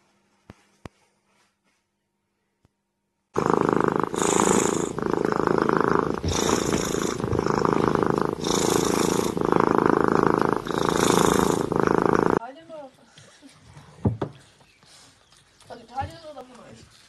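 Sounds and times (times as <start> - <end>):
kitten purring loudly: 3.4 - 12.4.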